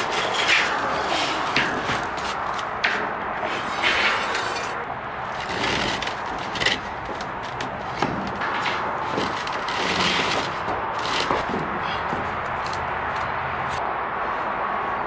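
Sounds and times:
wood and metal knocking on steel: 0:05.3 - 0:13.8.

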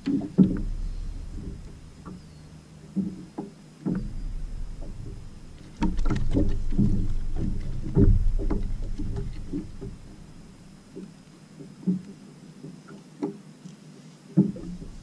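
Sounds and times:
low rumbling: 0:00.0 - 0:11.3, 0:14.5 - 0:15.0
clicks and knocks of unhooking fish: 0:04.8 - 0:10.0.

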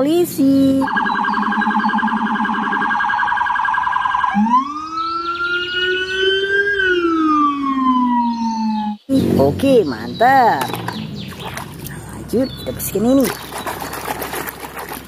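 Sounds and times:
police siren: 0:00.8 - 0:09.1.

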